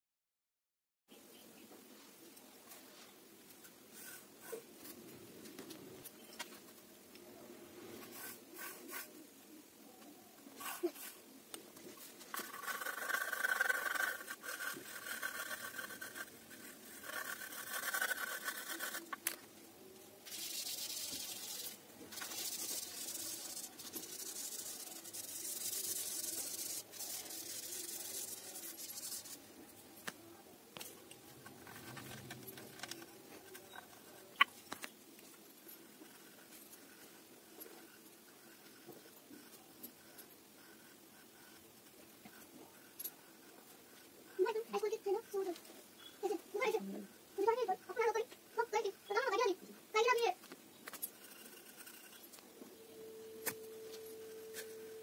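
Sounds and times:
pencil scratching on paper: 0:03.9 - 0:04.7, 0:07.9 - 0:09.2, 0:11.8 - 0:19.4, 0:20.2 - 0:29.4, 0:35.7 - 0:48.2, 0:51.1 - 0:52.2.

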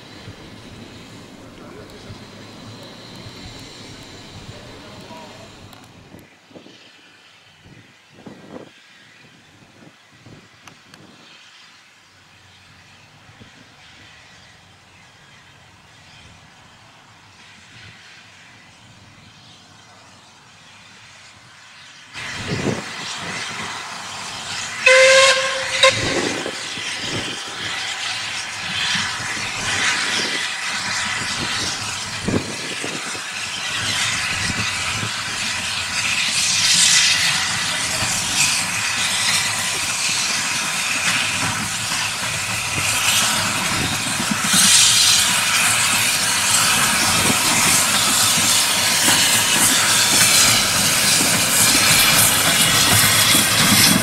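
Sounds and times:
loud hiss of steam: 0:00.0 - 0:07.2, 0:20.2 - 0:54.0
steam locomotive whistle: 0:24.5 - 0:31.7.

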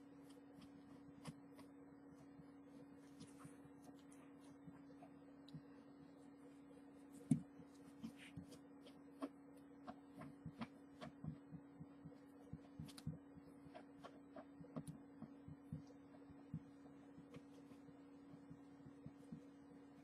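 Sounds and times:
faint low hum: 0:00.0 - 0:20.0
fabric pen tapping and scratching: 0:07.1 - 0:19.6.

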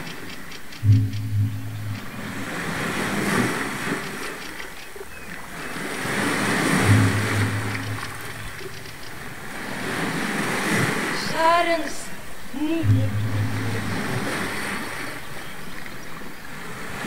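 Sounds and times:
short low hum: 0:00.8 - 0:03.0, 0:06.7 - 0:09.1, 0:12.8 - 0:15.0.

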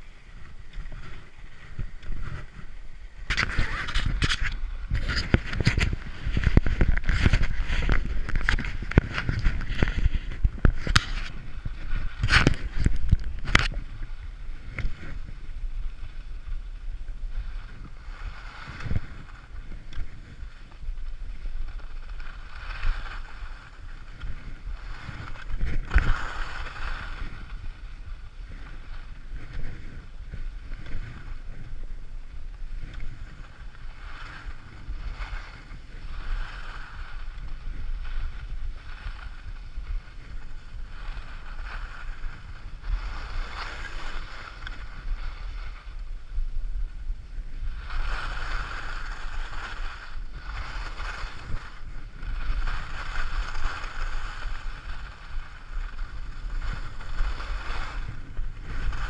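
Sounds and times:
skis swishing through snow: 0:00.0 - 0:59.0
wind buffeting microphone: 0:00.0 - 0:59.0.

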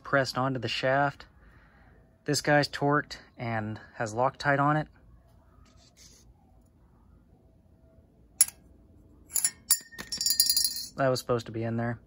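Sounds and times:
metal parts clinking: 0:09.3 - 0:11.0
ringing metallic clatter: 0:09.3 - 0:11.0.

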